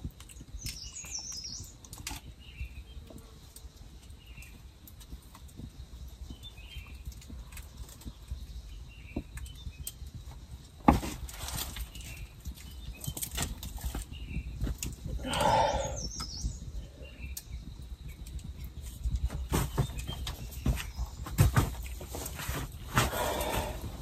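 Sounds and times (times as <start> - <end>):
campfire crackling: 0.0 - 10.8
rustling and handling noises: 10.3 - 15.0, 18.2 - 24.0.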